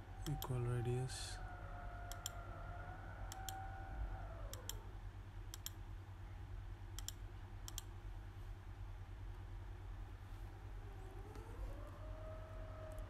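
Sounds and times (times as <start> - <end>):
low electrical hum: 0.0 - 13.0
computer mouse clicking: 0.2 - 0.6, 2.1 - 2.4, 3.3 - 3.6, 4.5 - 4.8, 5.5 - 5.8, 7.0 - 7.9.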